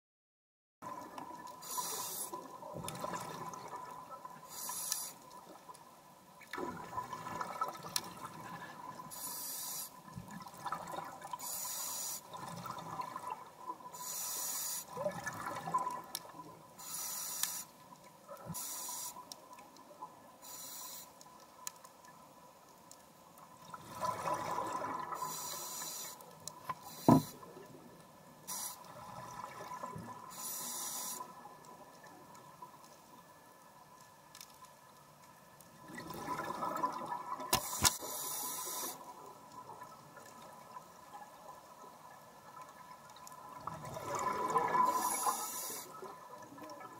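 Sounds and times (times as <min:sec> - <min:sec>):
faint steady whine: 0:00.9 - 0:46.9
regulator breathing hiss: 0:01.6 - 0:02.4, 0:04.5 - 0:05.2, 0:09.1 - 0:10.0, 0:11.4 - 0:12.3, 0:14.0 - 0:14.9, 0:16.8 - 0:17.7, 0:18.6 - 0:19.2, 0:20.4 - 0:21.2, 0:25.2 - 0:26.2, 0:26.8 - 0:27.4, 0:28.5 - 0:28.8, 0:30.3 - 0:31.3, 0:37.6 - 0:39.0, 0:44.9 - 0:46.0
bubbling underwater: 0:43.6 - 0:45.0.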